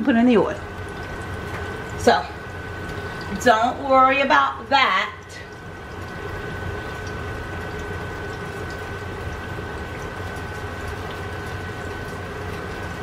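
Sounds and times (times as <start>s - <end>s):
fries sizzling in hot oil: 0.0s - 13.0s.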